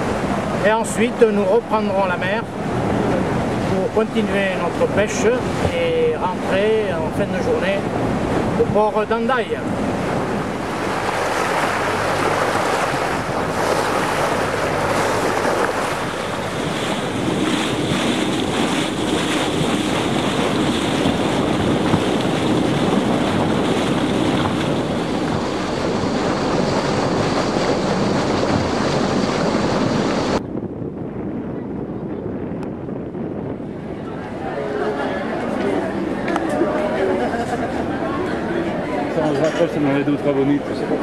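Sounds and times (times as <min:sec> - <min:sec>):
water rushing past hull: 0:00.0 - 0:30.4
wind buffeting microphone: 0:00.0 - 0:41.0
low engine drone: 0:09.7 - 0:30.5.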